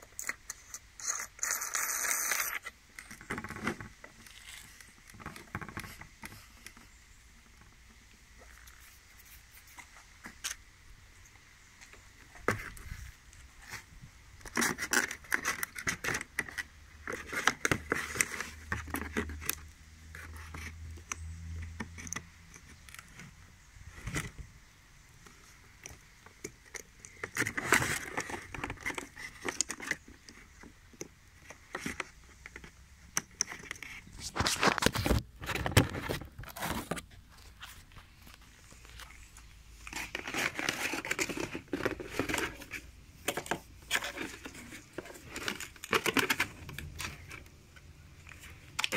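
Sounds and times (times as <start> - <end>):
rustling in a cardboard box: 27.1 - 32.7, 33.4 - 47.6.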